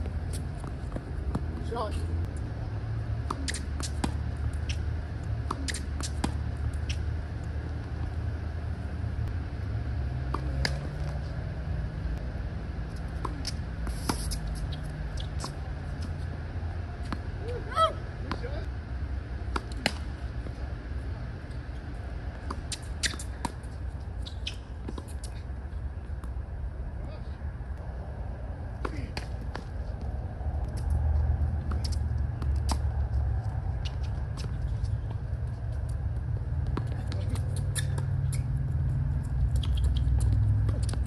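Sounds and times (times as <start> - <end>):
tennis ball bouncing: 3.1 - 8.4, 10.1 - 12.0, 19.4 - 20.5, 31.6 - 32.9, 36.6 - 41.0
tennis ball hits: 10.2 - 11.2
low rumble: 25.4 - 41.0.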